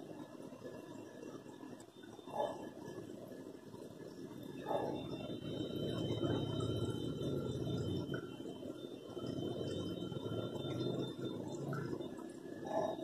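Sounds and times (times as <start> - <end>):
aquarium water bubbling: 0.0 - 13.0
faint high whine: 0.0 - 13.0.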